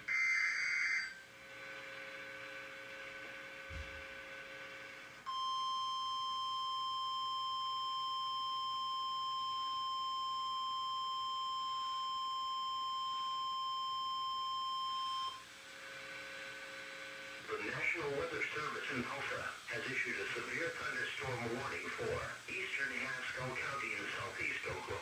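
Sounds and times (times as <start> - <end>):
steady alarm tone: 0.0 - 1.3
faint radio receiver hum: 15.8 - 25.0.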